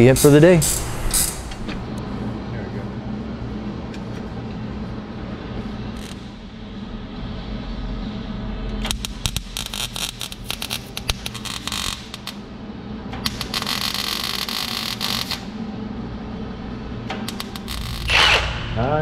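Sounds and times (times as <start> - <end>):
arc welding crackling: 0.0 - 2.0, 5.9 - 6.4, 8.7 - 12.5, 13.2 - 15.5, 17.2 - 18.7
steady low hum: 0.0 - 19.0.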